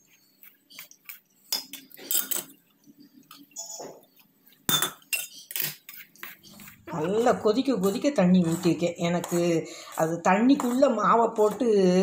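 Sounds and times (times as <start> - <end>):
metal spoon scraping steel bowl: 0.4 - 2.6, 4.7 - 12.0.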